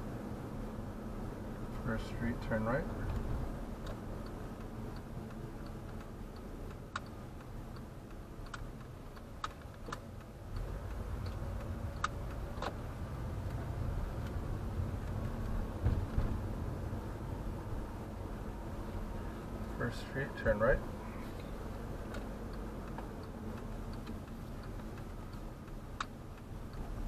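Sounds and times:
engine and tyre rumble: 0:00.0 - 0:27.0
turn signal ticking: 0:00.0 - 0:27.0
sharp single clicks: 0:03.1 - 0:12.8, 0:21.4 - 0:26.9.

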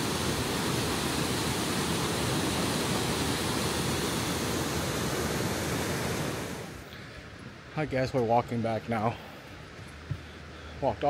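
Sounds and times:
waterfall roaring: 0:00.0 - 0:07.7.

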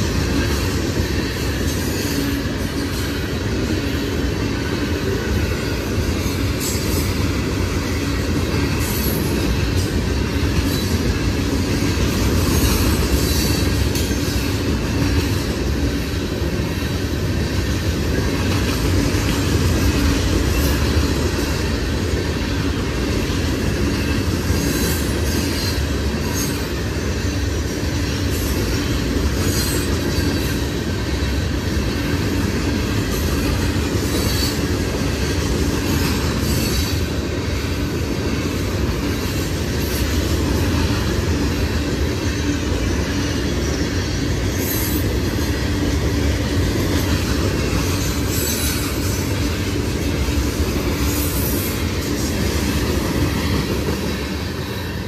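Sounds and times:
train wheels rumbling on rails: 0:00.0 - 0:55.0
high wheel squeals: 0:47.6 - 0:50.2.

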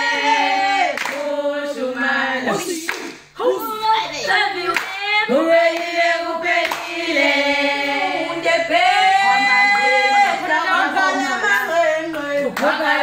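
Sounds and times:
girls singing together: 0:00.0 - 0:13.0
hand claps: 0:01.0 - 0:01.2, 0:02.9 - 0:03.2, 0:06.6 - 0:06.9.

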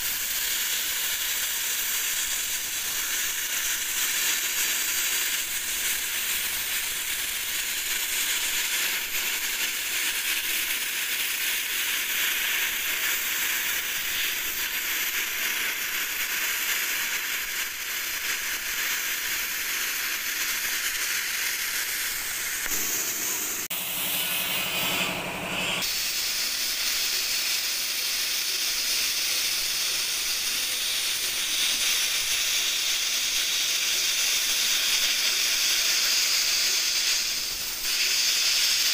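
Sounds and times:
plasma torch hissing: 0:00.0 - 0:38.9
low buzz: 0:22.6 - 0:25.8.

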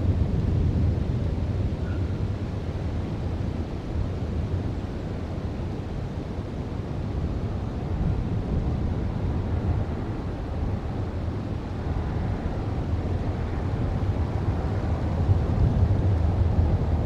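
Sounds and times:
wind on microphone: 0:06.4 - 0:17.0.

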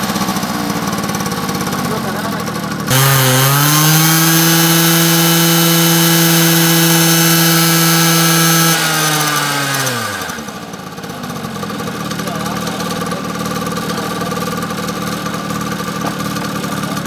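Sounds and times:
scooter engine revving: 0:00.0 - 0:17.0.

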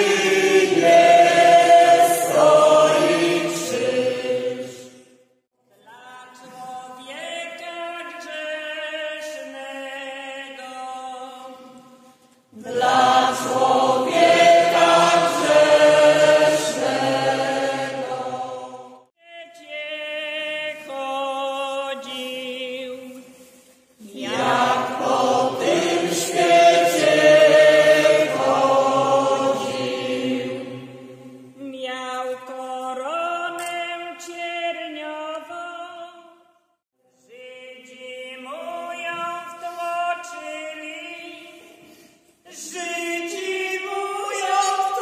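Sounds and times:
choir singing a hymn unaccompanied: 0:00.0 - 0:05.1, 0:12.5 - 0:19.1, 0:24.0 - 0:31.5.

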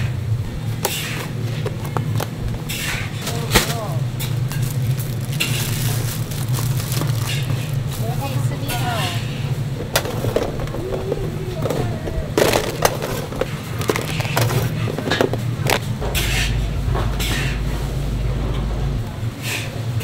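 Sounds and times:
steady low hum: 0:00.0 - 0:20.0
spatula and tongs scraping trays: 0:00.8 - 0:06.1, 0:07.0 - 0:17.9.

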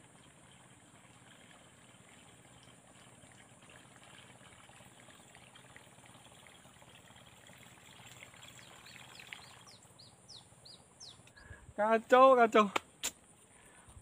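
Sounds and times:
bird chirping: 0:08.4 - 0:11.6.

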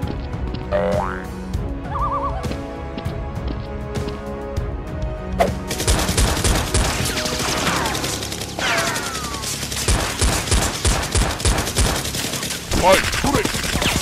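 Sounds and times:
background music: 0:00.0 - 0:14.0
rapid automatic gunfire effects: 0:05.7 - 0:14.0.

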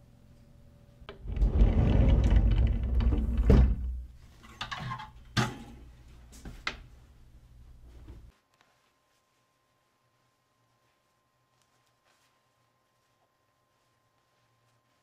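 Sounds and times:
closet door sliding on track: 0:01.1 - 0:04.0.

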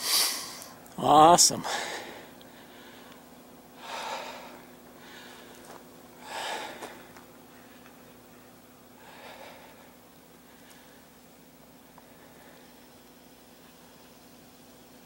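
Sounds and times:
person breathing hard: 0:00.0 - 0:00.8, 0:01.6 - 0:07.9, 0:08.9 - 0:11.2, 0:11.9 - 0:13.0
faint steady hum: 0:00.0 - 0:15.0.

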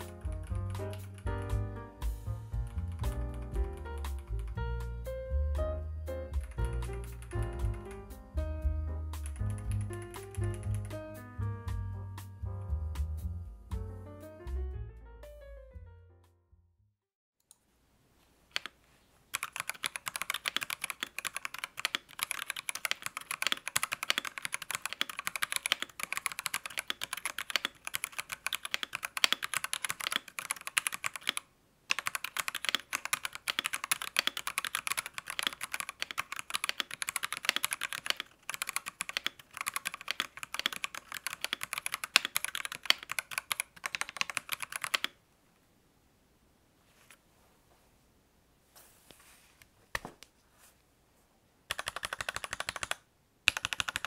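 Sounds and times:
mechanical keyboard typing: 0:00.0 - 0:01.3, 0:02.6 - 0:04.6, 0:06.4 - 0:08.0, 0:09.2 - 0:11.0, 0:18.5 - 0:45.2, 0:51.7 - 0:54.0.

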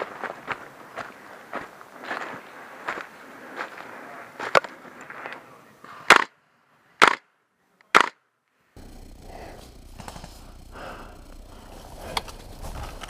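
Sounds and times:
airsoft rifle shots: 0:06.1 - 0:06.3, 0:07.0 - 0:07.3, 0:07.9 - 0:08.2
steady low hiss: 0:08.8 - 0:13.0
rustling in dry leaves: 0:11.5 - 0:13.0.

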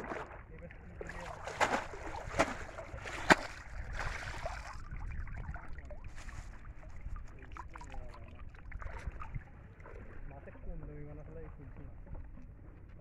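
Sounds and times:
water splashing and dripping: 0:01.0 - 0:10.0.

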